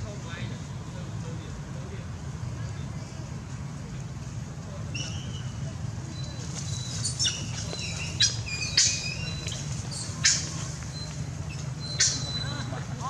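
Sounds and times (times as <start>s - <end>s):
high-pitched animal squeaks: 6.2s - 12.7s.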